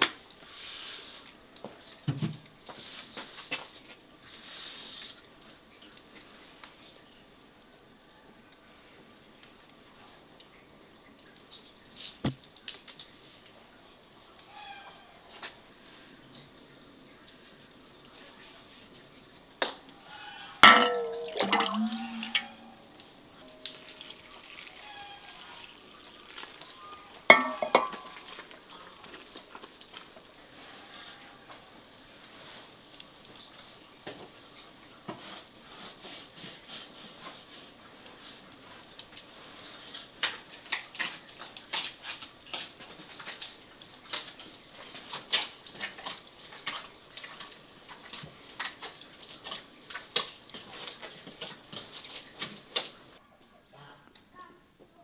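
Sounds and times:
dishes clattering: 20.6 - 22.9, 27.3 - 28.3
dishes and utensils clinking: 20.6 - 24.1, 27.3 - 28.4.

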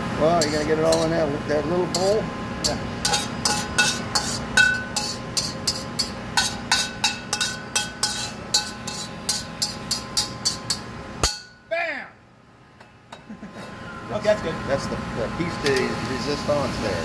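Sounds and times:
metal utensil scraping a wok: 0.4 - 1.2, 1.9 - 11.4.

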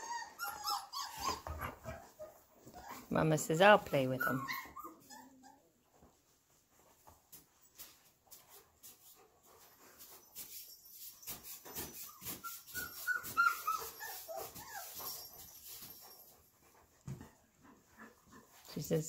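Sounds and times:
puppy whining high squeaks: 0.0 - 3.1, 4.1 - 5.7, 10.1 - 16.3
puppies scuffling on floor: 5.8 - 17.3.

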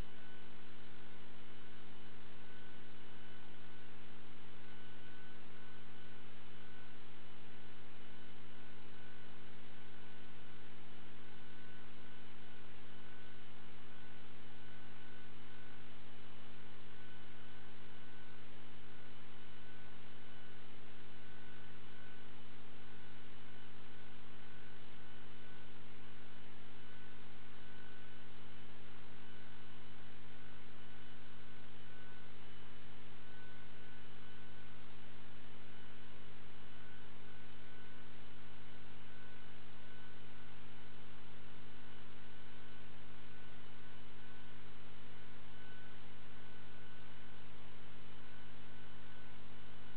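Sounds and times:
electrical mains hum: 0.0 - 49.9.

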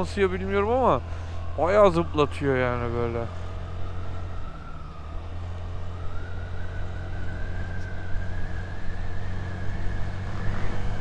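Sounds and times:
scooter engine accelerating: 3.4 - 11.0.

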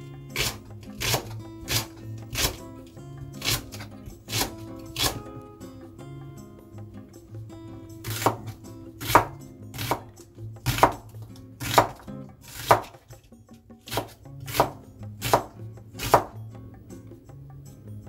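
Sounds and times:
knife slicing onion on board: 0.3 - 5.5, 8.0 - 13.2, 13.8 - 16.4.

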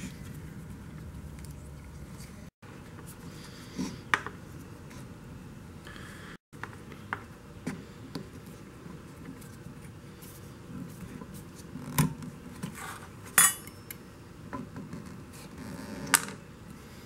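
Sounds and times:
sharp ringing metal clink: 13.4 - 14.0.

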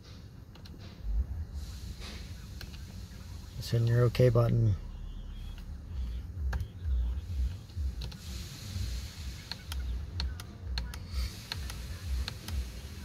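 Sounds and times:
steering wheel buttons clicking: 0.5 - 0.8, 5.6 - 6.8, 7.5 - 8.3, 9.4 - 12.6.

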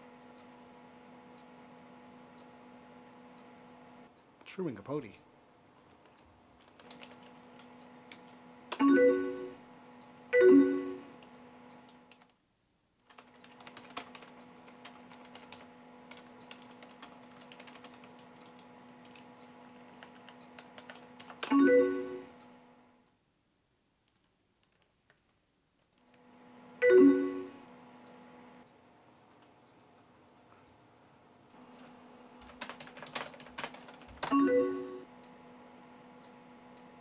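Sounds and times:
computer keyboard typing: 5.8 - 9.4, 11.2 - 12.3, 13.0 - 22.1, 24.0 - 26.3, 28.8 - 35.0.

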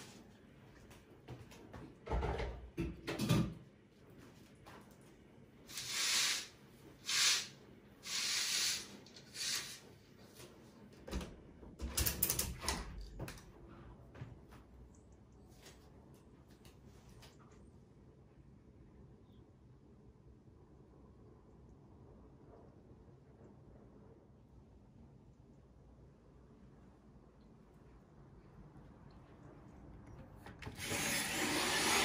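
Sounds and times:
kitchen clatter: 2.1 - 3.6.

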